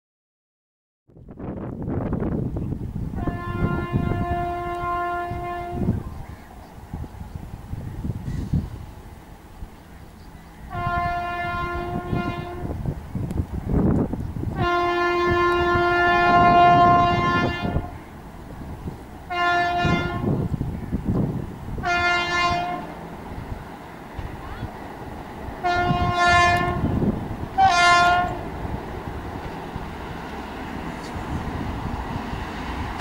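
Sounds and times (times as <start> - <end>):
train rumble: 1.2 - 33.0
locomotive horn blasts: 3.2 - 6.1, 10.6 - 12.8, 14.5 - 18.1, 19.3 - 20.5, 21.8 - 23.0, 25.6 - 28.6.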